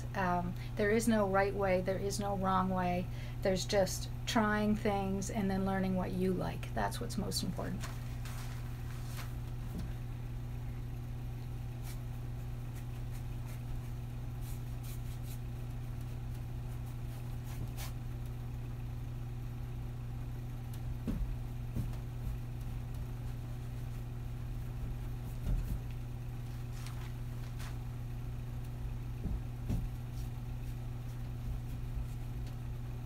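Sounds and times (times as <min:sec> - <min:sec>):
low fan hum: 0:00.0 - 0:33.0
brush scraping on canvas: 0:12.7 - 0:15.5, 0:16.7 - 0:18.0
soft knocks: 0:29.2 - 0:30.0.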